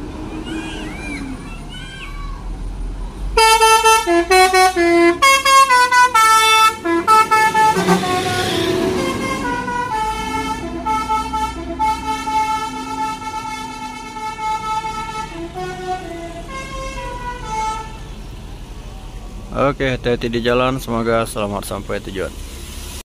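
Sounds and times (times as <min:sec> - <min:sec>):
musical air horn: 0:03.4 - 0:18.1.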